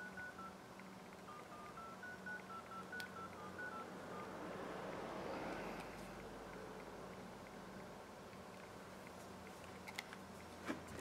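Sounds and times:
touch-tone beeps: 0.0s - 0.6s, 1.3s - 4.4s.

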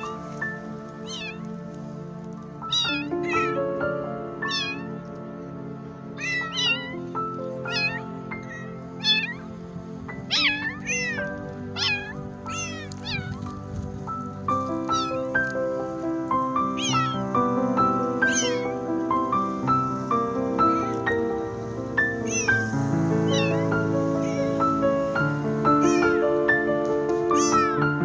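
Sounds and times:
kittens meowing: 0.0s - 2.0s, 2.6s - 5.2s, 6.0s - 15.6s, 16.7s - 17.3s, 18.1s - 18.8s, 20.6s - 21.2s, 22.1s - 26.3s, 27.2s - 27.9s
slow melodic background music: 0.0s - 28.0s.

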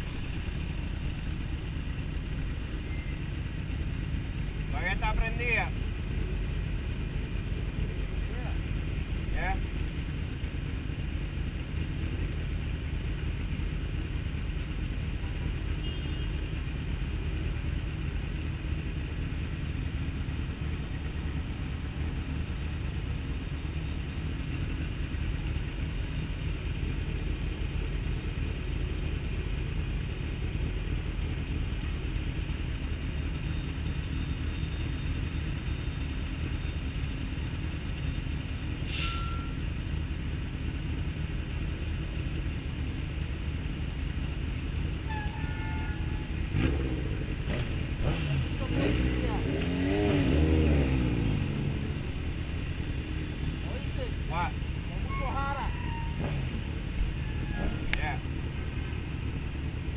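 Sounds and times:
city traffic: 0.0s - 59.9s
motorcycle engines idling: 0.0s - 59.9s
short high squeal: 38.8s - 39.6s, 45.1s - 46.4s, 55.0s - 56.4s, 57.1s - 57.9s.

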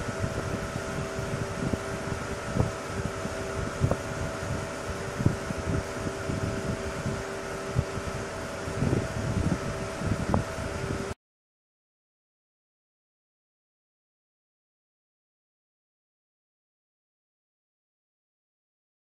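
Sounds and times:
machinery hum: 0.0s - 11.2s
wind buffeting microphone: 0.0s - 11.2s.

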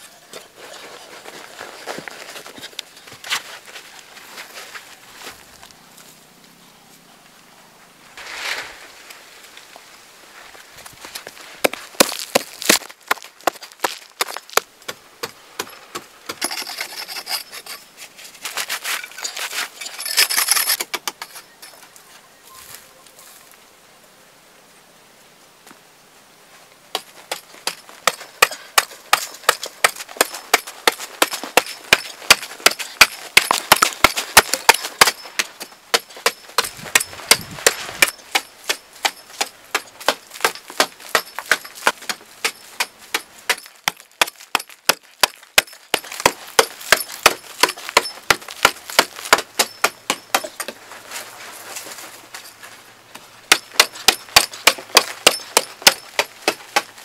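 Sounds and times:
digging tool striking hard clay: 26.9s - 50.8s, 53.5s - 56.9s.

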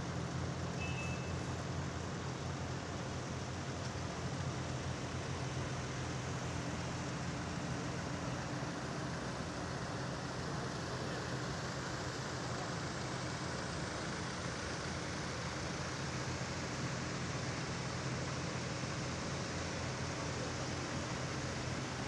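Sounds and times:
road noise: 0.0s - 22.0s
tractor diesel engines: 0.0s - 22.0s.

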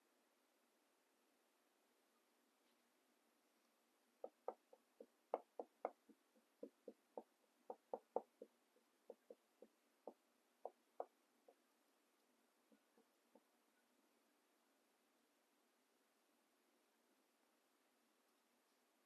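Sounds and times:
marker tapping on whiteboard: 4.2s - 11.6s.

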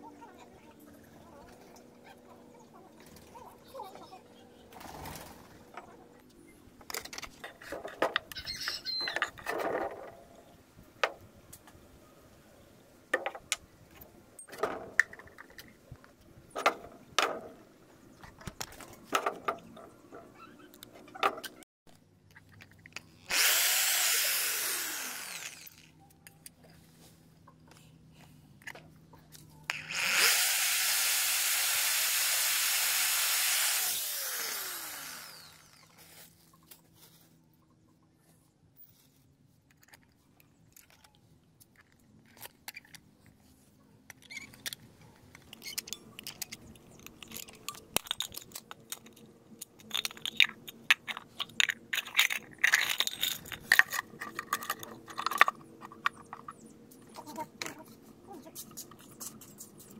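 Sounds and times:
electric drill boring through metal: 23.3s - 25.9s, 29.7s - 36.0s
hand riveter: 23.3s - 25.9s, 29.7s - 35.9s
sharp clicks and scrapes: 39.6s - 59.9s.

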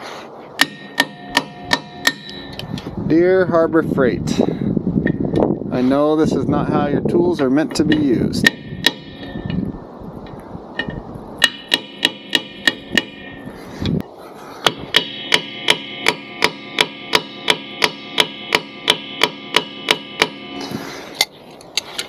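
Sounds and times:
hammer striking metal punch: 0.6s - 2.6s, 7.9s - 9.6s, 10.8s - 13.5s, 14.6s - 20.6s.

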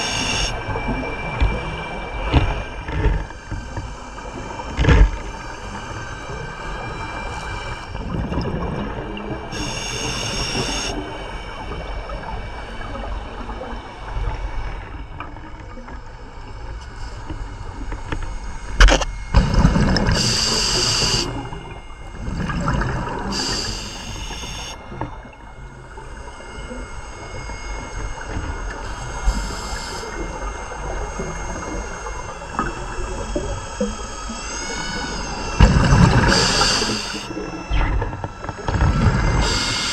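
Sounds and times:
regulator hissing inhales: 23.3s - 24.8s, 36.3s - 37.3s.

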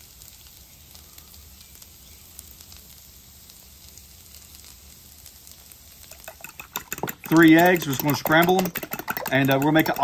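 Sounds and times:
hash browns sizzling on griddle: 0.0s - 10.0s.

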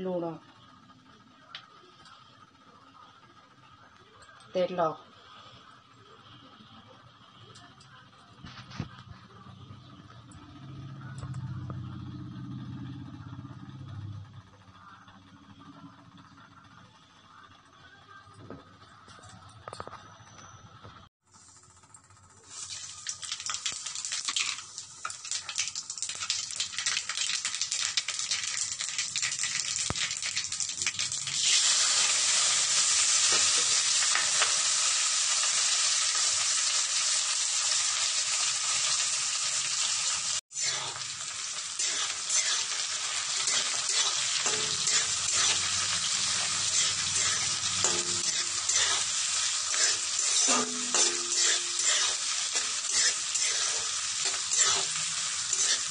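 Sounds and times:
oil sizzling in a pan: 21.3s - 55.9s
spatula scraping a pan: 40.5s - 55.9s.

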